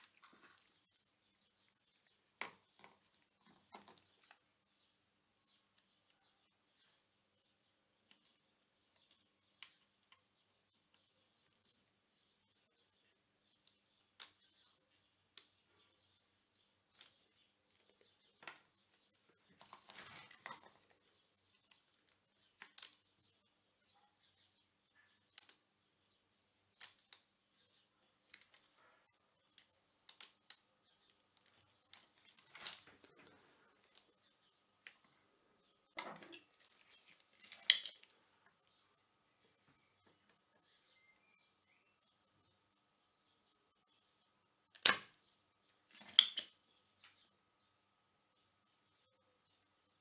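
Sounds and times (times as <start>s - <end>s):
light clicks of desoldering: 25.3s - 25.6s, 29.4s - 34.1s.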